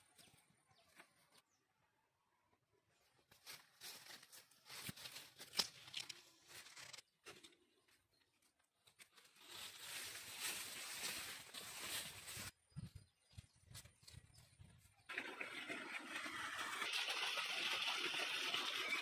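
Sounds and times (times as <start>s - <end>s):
footsteps through tall grass: 3.3s - 6.6s, 9.1s - 13.0s.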